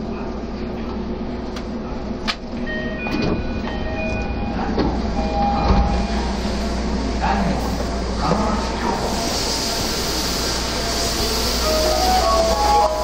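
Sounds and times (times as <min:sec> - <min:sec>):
subway car rumble: 0:00.0 - 0:13.0
subway doors opening clunk: 0:01.5 - 0:06.6.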